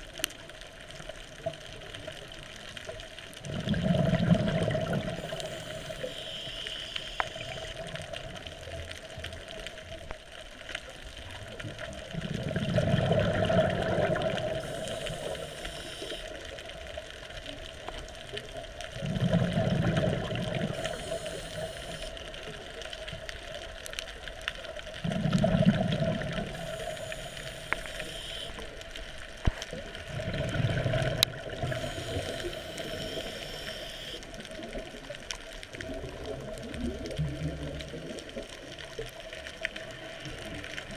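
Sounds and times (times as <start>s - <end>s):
exhaled bubbles rumbling underwater: 0.0s - 40.9s
regulator inhalation hiss: 5.1s - 7.8s, 14.5s - 16.4s, 20.7s - 22.2s, 26.5s - 28.7s, 31.6s - 34.3s.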